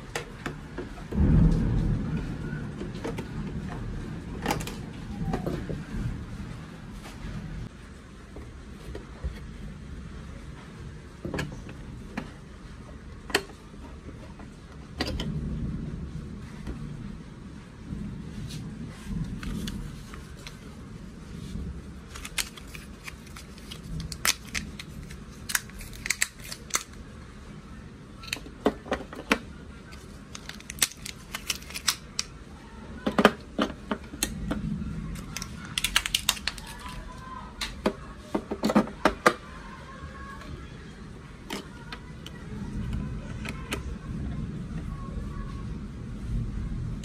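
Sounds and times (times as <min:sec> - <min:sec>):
batteries snapping into compartment: 0:22.2 - 0:26.9, 0:30.3 - 0:32.3, 0:35.4 - 0:37.0.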